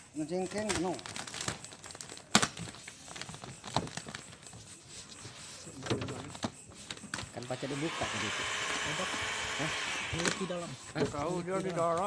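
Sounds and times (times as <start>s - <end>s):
vinyl film crackling: 0.2s - 7.4s.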